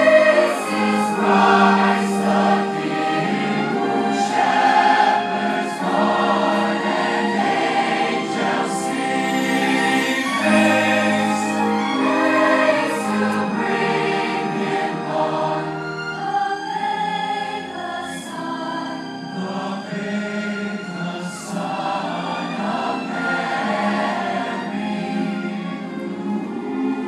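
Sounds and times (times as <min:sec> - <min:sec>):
large choir singing: 0:00.0 - 0:27.0.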